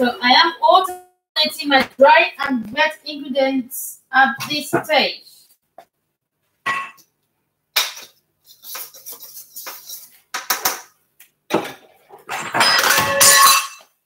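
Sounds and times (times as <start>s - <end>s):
metal bowl and spatula clattering: 11.5s - 14.0s.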